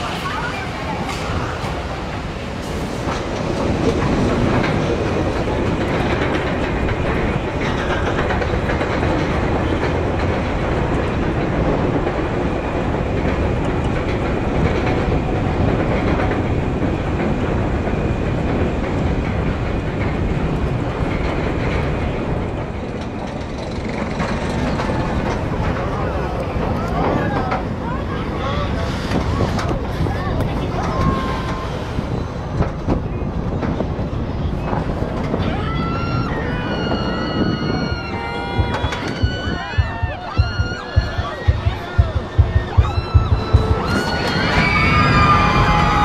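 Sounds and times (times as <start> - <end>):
roller coaster chain lift clattering: 0.0 - 46.0.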